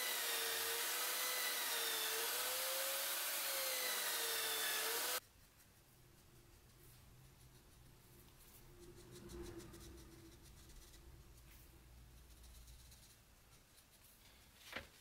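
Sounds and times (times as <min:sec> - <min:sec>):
marker scratching on paper: 0:05.2 - 0:14.5.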